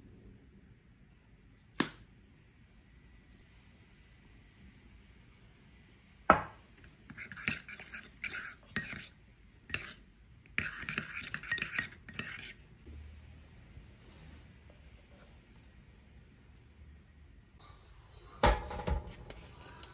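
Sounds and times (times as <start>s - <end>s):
metal spoon scraping ceramic bowl: 6.8s - 12.6s
spoon clinking on bowl: 9.7s - 10.0s, 10.6s - 12.6s.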